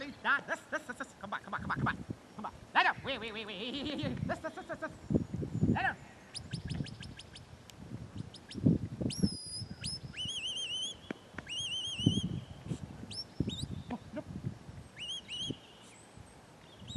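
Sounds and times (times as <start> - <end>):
high warbling whistles: 5.6 - 7.5, 8.2 - 12.5, 15.0 - 16.0
short sharp whistled chirps: 8.2 - 13.9, 15.0 - 16.1.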